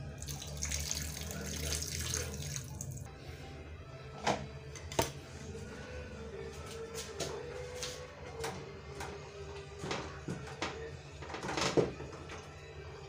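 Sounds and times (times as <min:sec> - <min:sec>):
water pouring into steel sink: 0:00.0 - 0:03.1.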